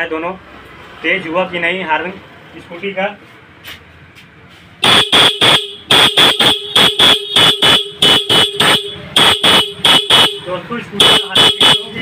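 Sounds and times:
electric horn beeps: 4.8s - 12.0s.

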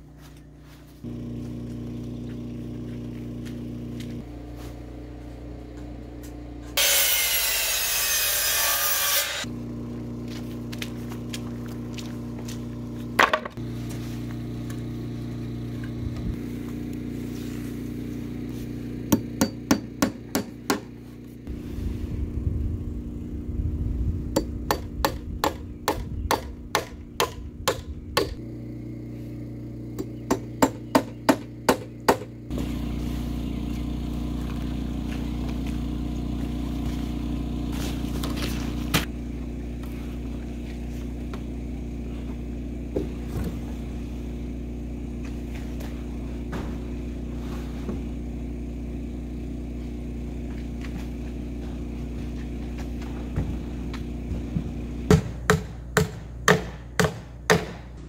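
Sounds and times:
steady low hum: 0.0s - 6.8s, 9.4s - 58.0s
hammer striking wood: 19.1s - 21.0s, 24.4s - 28.4s, 30.0s - 32.3s, 55.1s - 58.0s.

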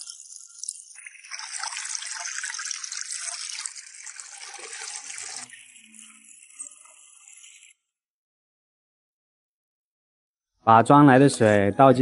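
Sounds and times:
water running into plastic bottle: 0.0s - 7.7s.

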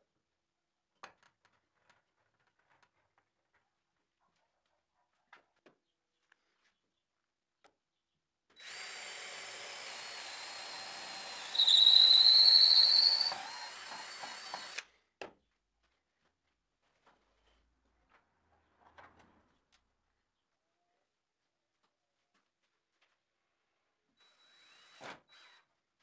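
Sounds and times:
power drill whining: 8.6s - 14.9s, 24.2s - 25.7s.

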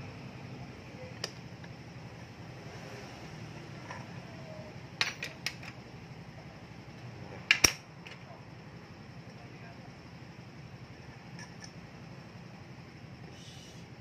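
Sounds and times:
background hiss: 13.2s - 14.0s.

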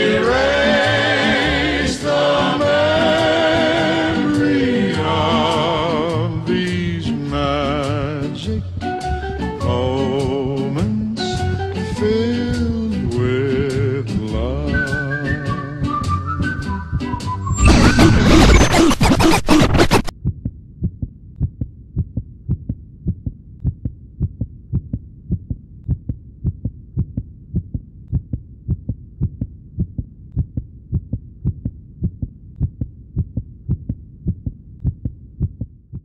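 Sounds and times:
heartbeat double beats: 17.5s - 36.0s.

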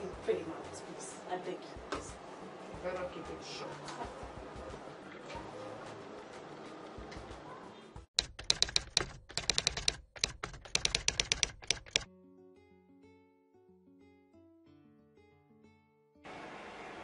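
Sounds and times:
keyboard key clicks: 8.2s - 12.1s
soft plucked guitar music: 12.1s - 16.2s.

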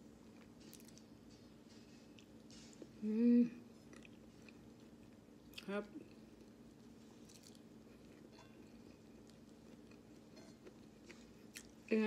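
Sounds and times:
chewing and mouth sounds: 0.2s - 1.1s, 3.7s - 11.9s.

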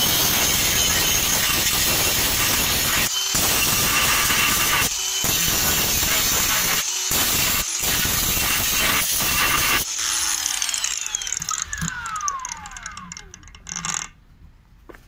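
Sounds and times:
angle grinder cutting steel: 0.0s - 14.2s
grinder disc spinning down whine: 10.2s - 14.1s.

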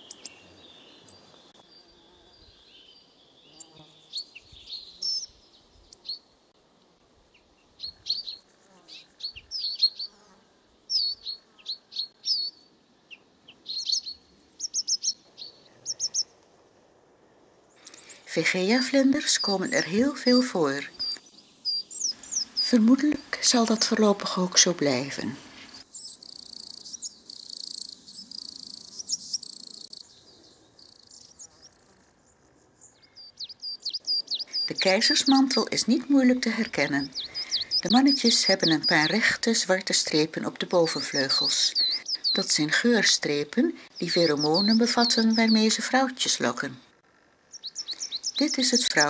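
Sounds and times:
songbird chirping and whistling: 7.8s - 10.2s, 10.9s - 16.3s, 18.9s - 23.2s, 25.6s - 31.7s, 32.9s - 39.3s, 40.8s - 42.8s, 43.8s - 45.9s, 47.5s - 49.0s
cricket trilling: 25.5s - 39.3s.

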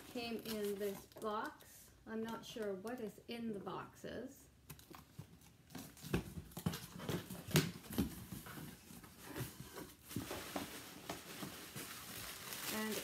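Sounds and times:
cardboard box rustling and scraping: 5.8s - 12.3s.

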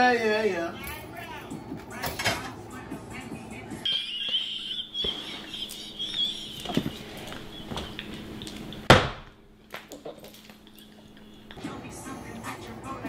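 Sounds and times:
high-pitched squeal of laughter: 3.9s - 7.2s
women laughing: 3.9s - 8.0s
loud thump: 8.9s - 9.3s.

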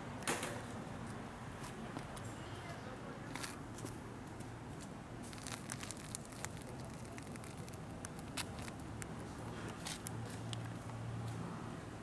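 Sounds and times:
light crackles and clicks: 5.3s - 11.0s.

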